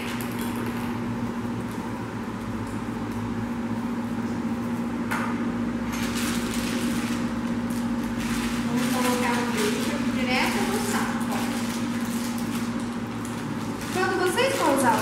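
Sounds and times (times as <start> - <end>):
low electrical hum: 0.0 - 15.0
plastic piping bag crinkling: 5.9 - 15.0.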